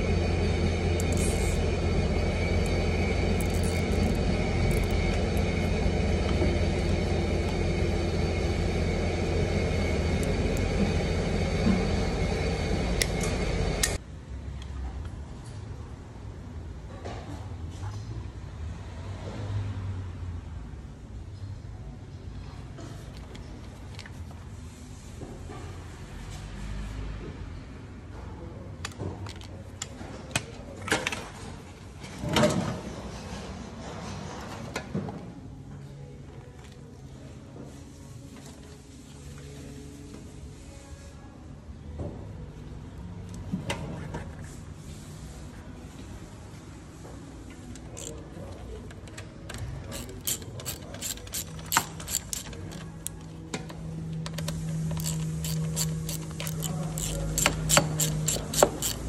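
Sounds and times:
steady low hum: 0.0 - 14.0
ratchet driver clicking: 1.0 - 1.6, 3.4 - 5.5, 49.9 - 53.2, 54.9 - 59.0.

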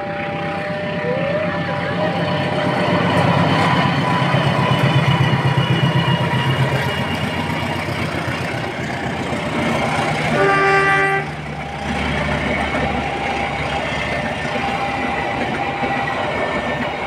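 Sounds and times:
multi-tone locomotive horn: 0.0 - 2.8, 9.8 - 16.9
locomotive engine pulsing: 0.0 - 17.0
wheels rumbling on rails: 0.0 - 17.0.

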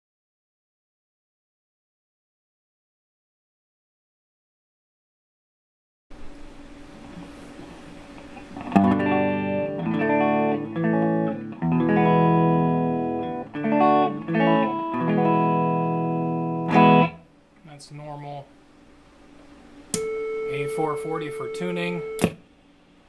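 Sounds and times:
faint hiss and hum: 6.1 - 23.0
electric guitar strumming chords: 8.1 - 17.2.

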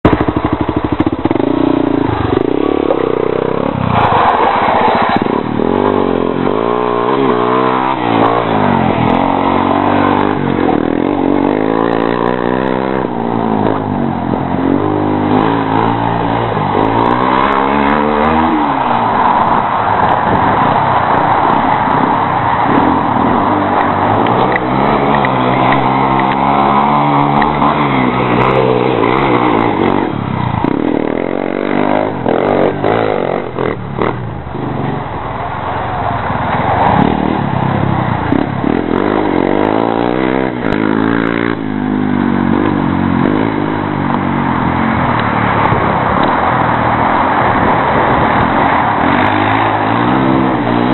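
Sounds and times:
quad engine revving: 0.0 - 19.6, 22.7 - 34.9, 38.2 - 46.4, 47.4 - 50.9.

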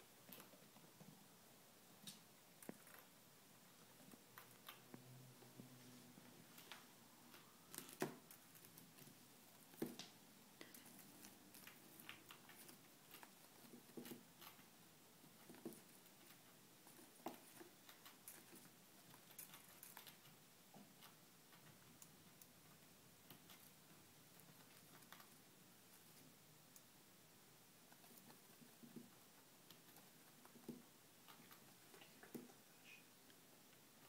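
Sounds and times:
chinchilla gnawing: 6.6 - 26.9.

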